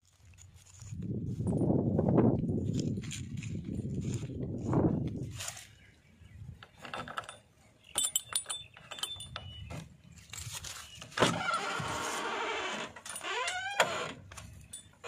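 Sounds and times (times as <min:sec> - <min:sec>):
short rising squeaks: 0:11.1 - 0:14.2.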